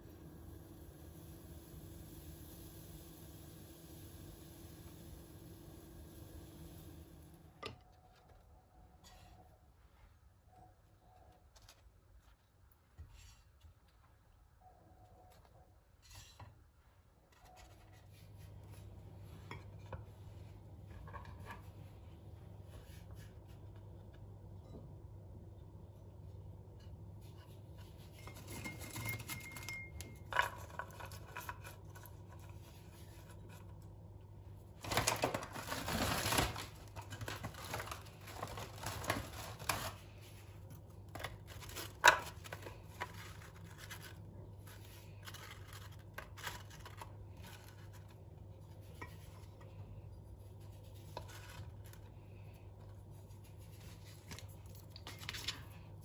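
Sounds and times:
low steady hum: 16.1 - 56.0.

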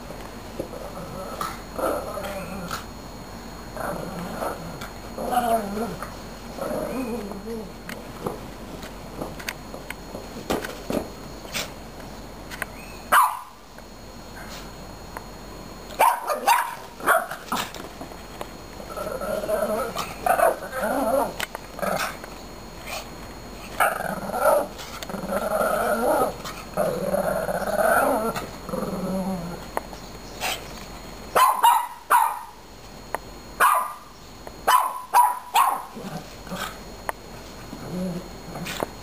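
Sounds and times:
small dog growling: 0.6 - 2.9, 3.7 - 7.8, 18.8 - 22.2, 23.7 - 29.7, 35.9 - 36.8, 37.7 - 38.9
dog barking: 13.1 - 13.5, 16.0 - 17.3, 31.4 - 32.6, 33.6 - 34.0, 34.7 - 35.9.

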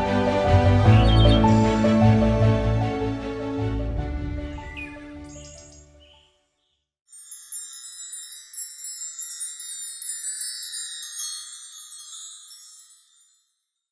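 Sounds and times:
background music: 0.0 - 6.3
high-pitched chime tinkling: 7.1 - 13.9.

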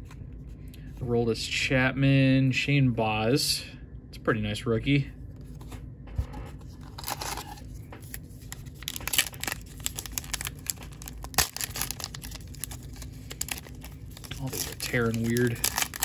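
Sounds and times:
wrapper tearing and crinkling: 6.9 - 16.0.

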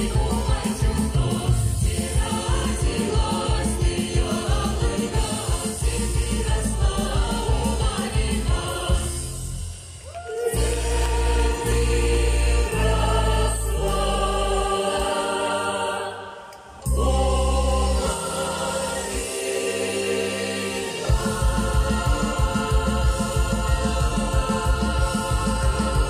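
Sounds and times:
choir singing long held notes: 0.0 - 26.0
amplified music with sustained bass: 10.6 - 16.2, 16.8 - 26.0.

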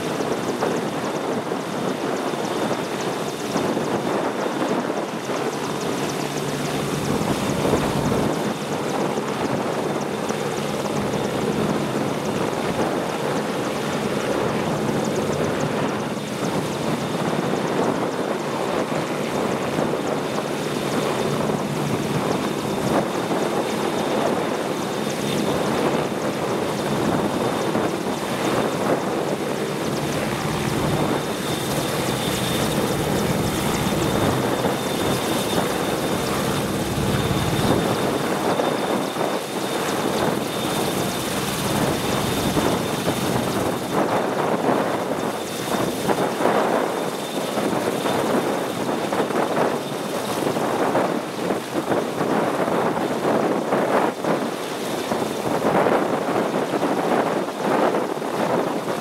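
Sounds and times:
helicopter engine and rotor: 0.0 - 59.0
thin high whine: 24.2 - 44.2.

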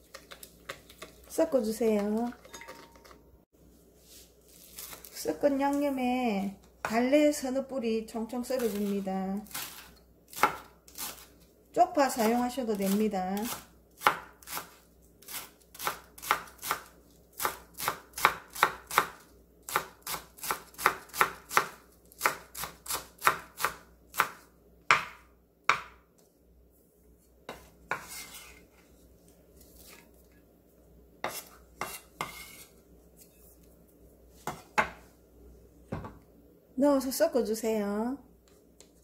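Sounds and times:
knife chopping on wooden board: 9.6 - 11.2, 12.3 - 14.8, 15.8 - 26.0, 27.5 - 28.5, 31.2 - 32.6
knife scrape on board: 27.5 - 28.9, 31.2 - 33.6.

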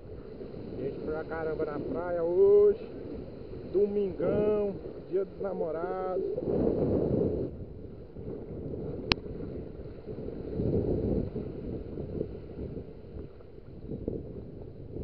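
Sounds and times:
surf on beach: 0.0 - 15.0
wind buffeting microphone: 0.0 - 15.0.

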